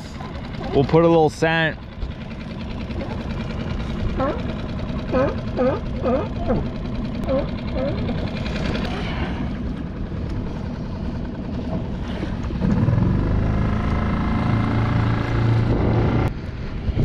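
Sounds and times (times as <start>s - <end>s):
small outboard motor: 0.0s - 17.0s
water noise: 0.0s - 17.0s
wind: 0.0s - 17.0s.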